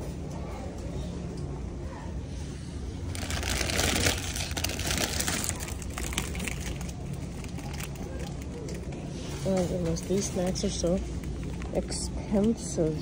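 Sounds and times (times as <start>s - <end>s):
steady low hum: 0.0s - 13.0s
plastic bags crinkling: 3.0s - 8.9s.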